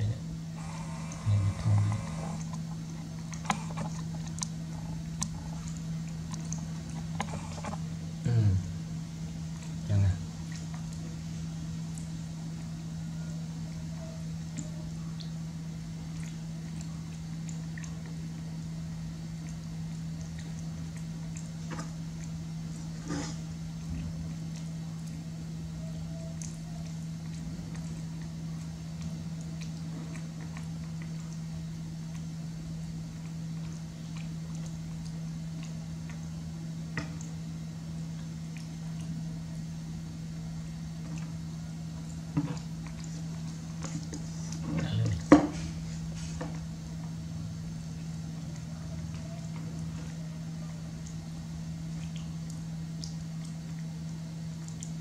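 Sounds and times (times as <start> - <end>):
low electrical hum: 0.0 - 55.0
monkey chewing: 0.6 - 7.9.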